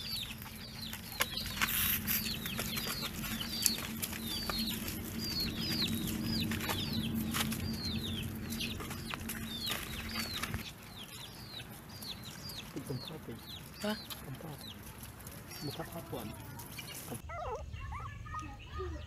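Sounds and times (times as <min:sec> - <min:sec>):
low hum: 0:00.0 - 0:12.0
chicks peeping: 0:00.0 - 0:19.0.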